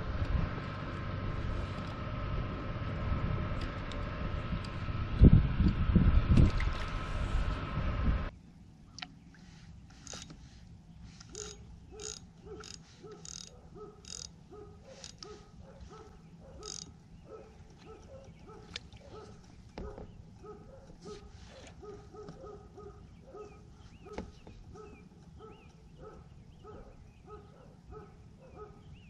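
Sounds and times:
fishing reel clicking: 11.2 - 14.3, 16.6 - 16.9.

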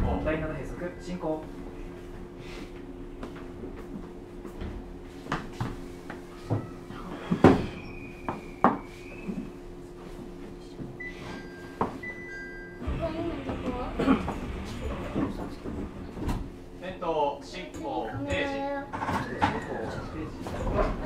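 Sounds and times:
train car hum: 0.0 - 21.0
two-tone electronic chime: 11.0 - 12.8.

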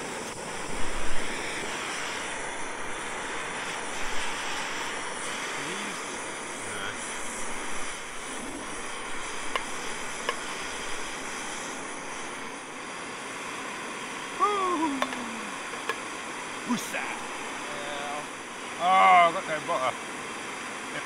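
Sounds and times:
gas stove hissing and roaring: 0.0 - 21.0
short voice sound: 14.4 - 15.6.

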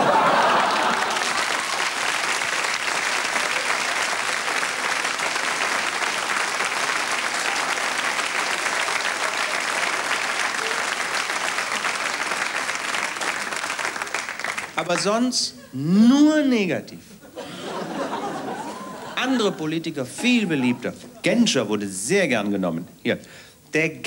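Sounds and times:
audience applauding: 0.0 - 15.2.

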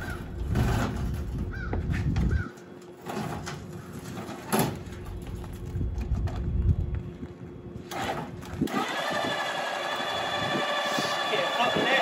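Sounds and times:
low rumble: 5.0 - 7.8
electric motor whine: 7.9 - 12.0.

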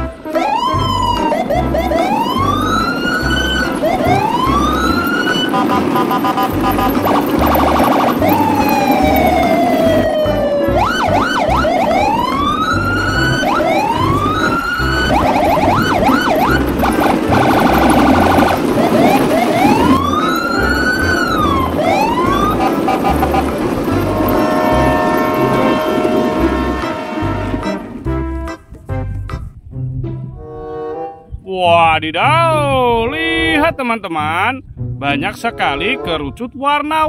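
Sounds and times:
siren sound effects: 0.3 - 23.6.

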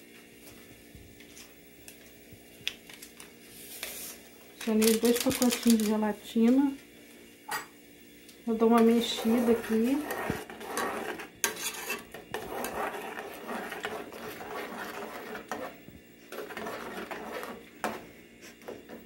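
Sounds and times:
metal spoon scraping saucepan: 8.8 - 18.0.

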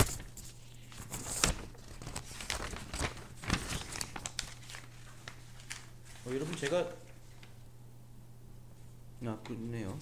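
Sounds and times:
paper rustling and shuffling: 0.0 - 7.6
faint electrical hum: 0.0 - 10.0.

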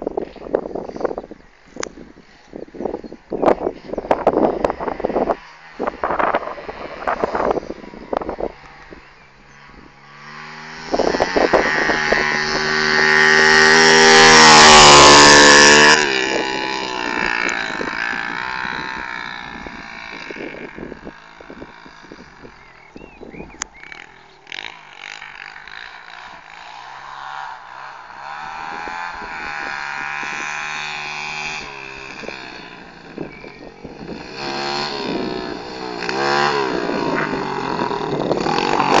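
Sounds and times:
motorbike engine revving: 0.8 - 39.0.

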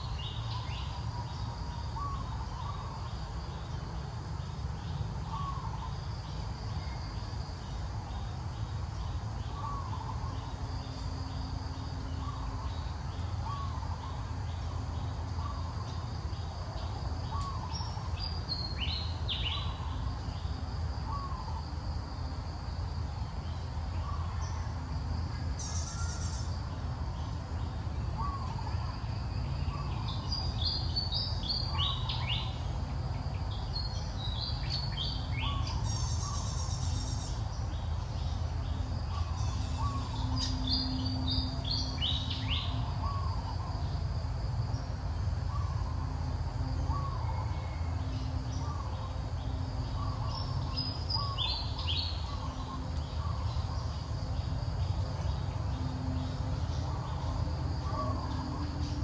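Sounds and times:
insects pulsing: 0.0 - 59.0.

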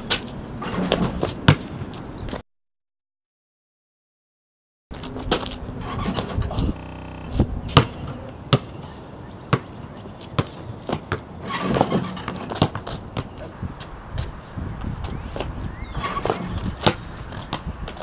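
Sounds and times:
basketball bouncing on concrete: 0.1 - 1.8, 6.8 - 8.7, 10.4 - 13.5.

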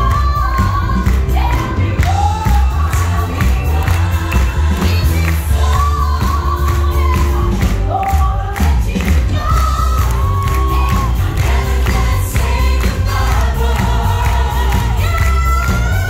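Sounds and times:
audience noise: 0.0 - 16.0
cast singing together: 10.8 - 16.0.

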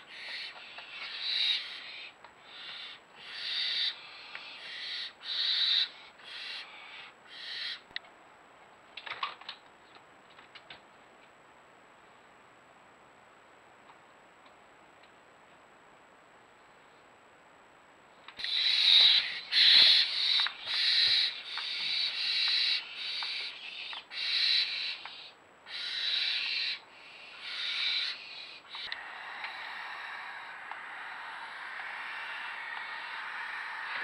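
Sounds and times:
soft steady hiss: 0.0 - 34.0
barn owl screeches: 18.4 - 25.1, 25.7 - 26.8, 27.4 - 34.0.

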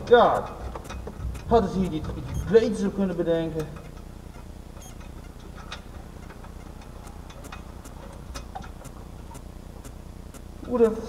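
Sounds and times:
steady low hum: 0.0 - 11.0
faint clicks and taps: 0.3 - 2.5.

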